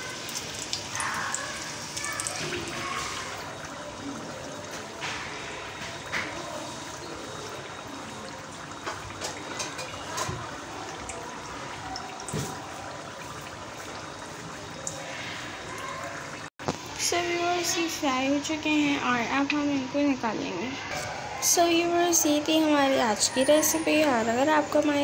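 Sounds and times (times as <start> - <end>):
oil popping and crackling: 0.0 - 17.0
food deep-frying in hot oil: 0.0 - 25.0.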